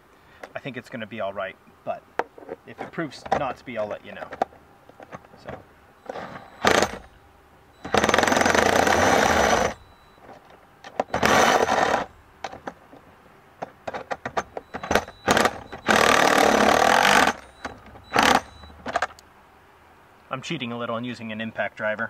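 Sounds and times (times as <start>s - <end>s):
impact driver hammering: 6.3s - 7.2s, 7.8s - 10.0s, 11.0s - 12.7s, 14.0s - 19.1s.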